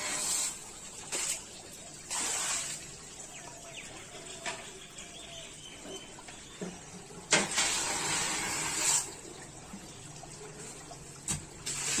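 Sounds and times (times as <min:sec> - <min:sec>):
hot metal sizzling in water: 0:00.0 - 0:03.0, 0:07.3 - 0:09.3, 0:11.3 - 0:12.0.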